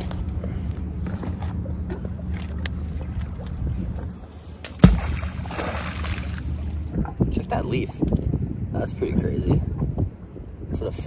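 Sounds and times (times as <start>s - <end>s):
low hum: 0.0s - 8.7s
magnet splashing into water: 4.6s - 6.6s.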